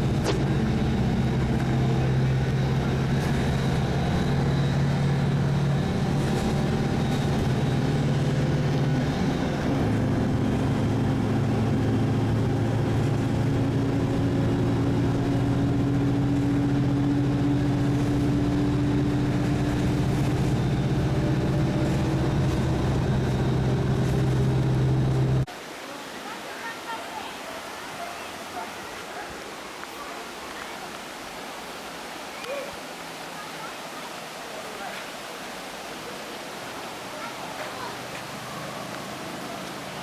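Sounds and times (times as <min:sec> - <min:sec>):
car engine and road noise: 0:00.0 - 0:25.6, 0:35.6 - 0:40.0.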